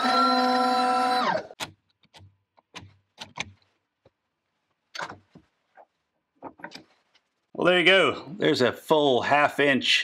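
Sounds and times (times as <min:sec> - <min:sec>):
sharp metallic clicks and knocks: 0:01.6 - 0:04.2, 0:04.9 - 0:05.5.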